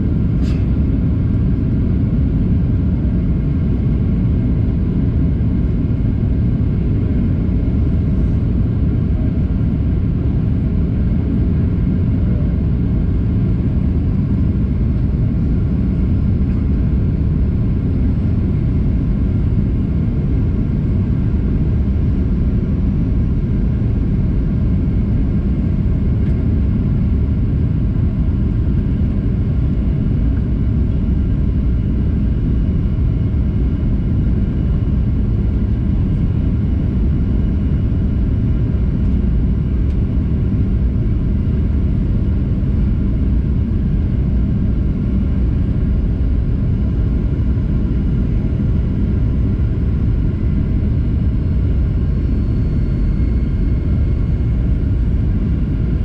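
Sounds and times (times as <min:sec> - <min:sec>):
jet engines rumbling: 0:00.0 - 0:56.0.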